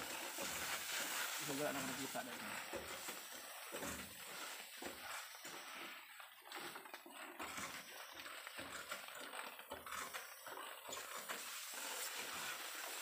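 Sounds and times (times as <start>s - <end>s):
sprayer hissing: 0.0s - 5.3s, 11.3s - 13.0s.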